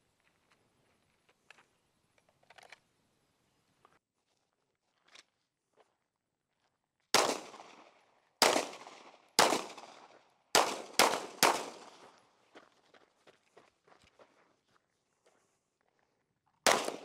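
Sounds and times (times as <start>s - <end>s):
gunshots ringing out: 7.1s - 12.2s, 16.6s - 17.0s.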